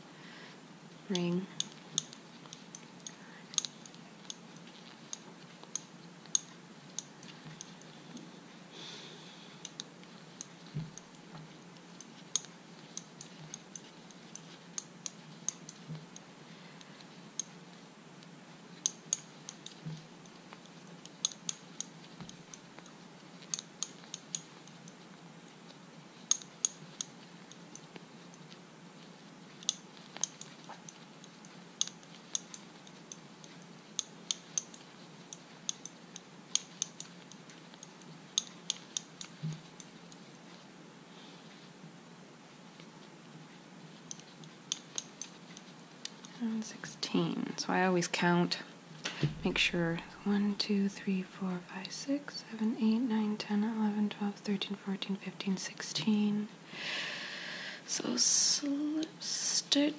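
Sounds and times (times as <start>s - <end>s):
crochet hook clicking on fingernails: 1.1s - 8.3s, 9.6s - 17.6s, 18.8s - 25.0s, 26.3s - 28.6s, 29.5s - 39.9s, 44.1s - 46.4s.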